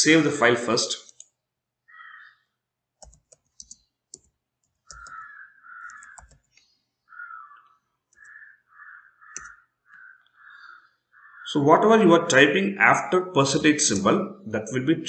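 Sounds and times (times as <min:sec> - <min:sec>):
faint repeated calls: 0:01.9 - 0:02.6, 0:04.8 - 0:11.9
keyboard keys clicking: 0:03.0 - 0:05.2, 0:05.8 - 0:06.6, 0:09.3 - 0:09.6.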